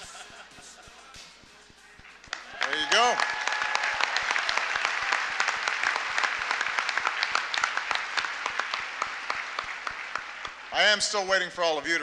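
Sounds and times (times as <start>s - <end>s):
audience applauding: 2.0s - 11.5s.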